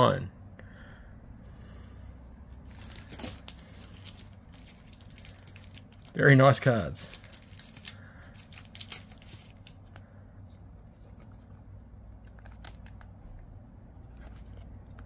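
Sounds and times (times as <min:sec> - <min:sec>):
plastic card sleeve rustling: 0:02.6 - 0:13.2, 0:14.0 - 0:15.0.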